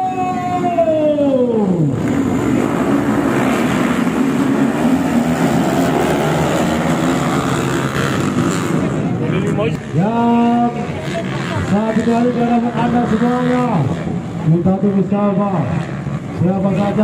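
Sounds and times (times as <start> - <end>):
descending wail: 0.0 - 2.0
motorcycle engines revving: 0.0 - 17.0.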